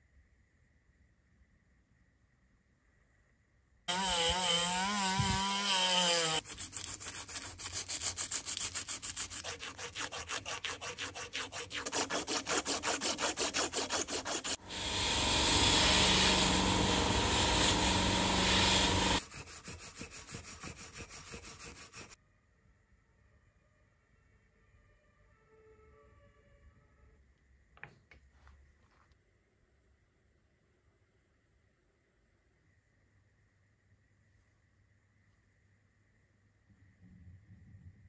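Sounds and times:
sandpaper rubbing on metal: 3.9 - 14.6, 15.6 - 22.2
abrasive pad rubbing metal: 7.7 - 22.2
rotary wire brush whirring on metal: 14.5 - 19.2.

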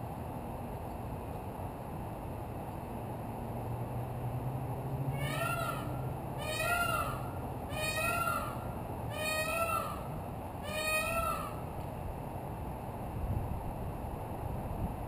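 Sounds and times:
peacock calling: 5.1 - 11.8.

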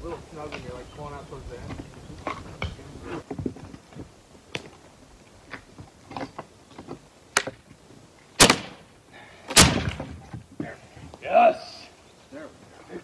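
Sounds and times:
knocks of wood and tools: 5.5 - 7.7.

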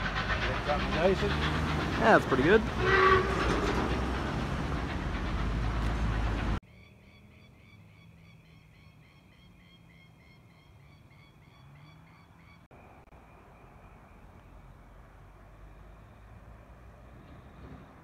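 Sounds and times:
steam train running: 0.0 - 6.6.

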